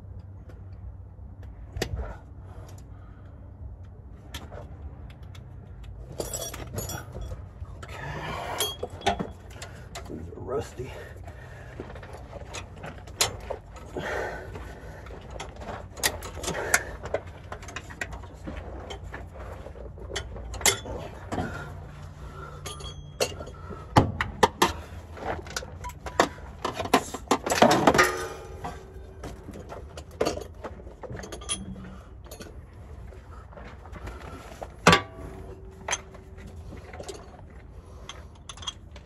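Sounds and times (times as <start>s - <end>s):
hand tools clinking on metal: 6.1s - 11.0s, 20.0s - 32.6s.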